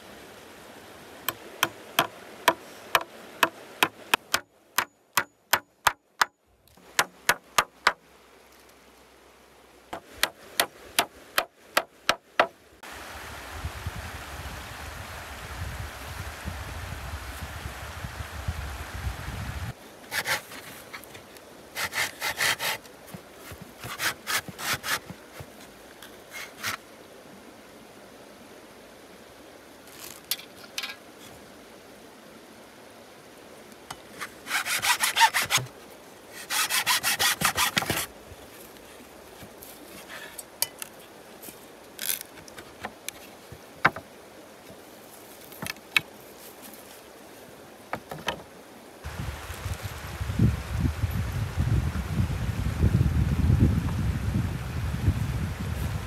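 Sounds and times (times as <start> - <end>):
hand saw cutting wood: 20.1 - 20.7, 21.8 - 22.9, 23.8 - 25.2, 34.2 - 35.7, 36.4 - 38.1.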